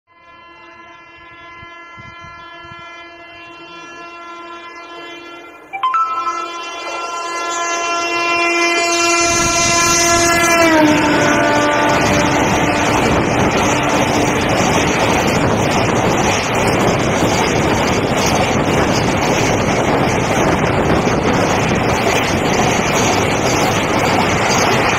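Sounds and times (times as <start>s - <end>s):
electric locomotive horn blast: 0.1s - 15.8s
freight train wheels rumbling: 6.7s - 24.9s.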